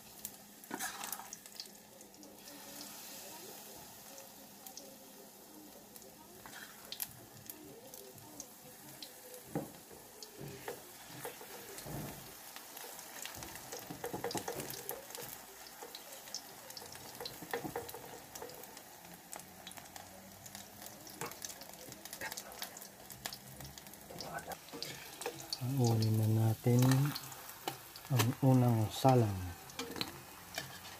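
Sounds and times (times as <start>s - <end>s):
batter sizzling in oil: 0.0s - 30.9s
spatula scraping and tapping pan: 9.4s - 18.8s, 24.1s - 26.0s, 29.7s - 30.9s.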